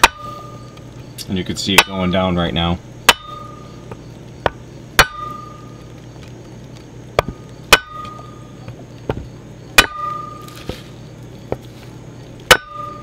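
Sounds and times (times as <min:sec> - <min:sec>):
metallic ring: 0:00.0 - 0:00.8, 0:03.0 - 0:03.8, 0:05.0 - 0:05.8, 0:07.7 - 0:08.5, 0:09.8 - 0:10.8, 0:12.5 - 0:13.0.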